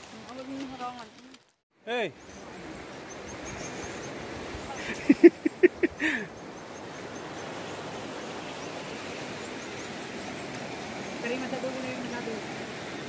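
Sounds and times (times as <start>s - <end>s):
river water flowing over rocks: 6.0s - 13.0s.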